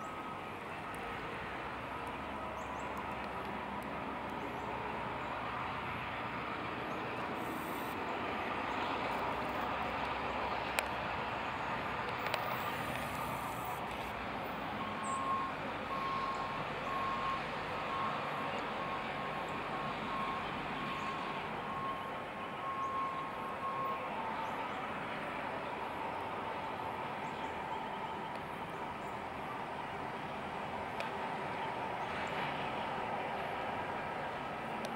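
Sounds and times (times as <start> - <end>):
diesel locomotives running: 0.0 - 34.9
faint high beeping: 7.4 - 8.0.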